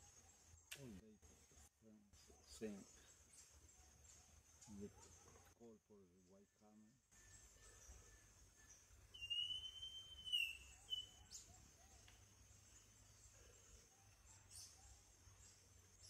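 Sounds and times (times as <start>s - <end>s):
high insect hiss: 7.2s - 16.0s
bird whistling: 9.1s - 11.5s.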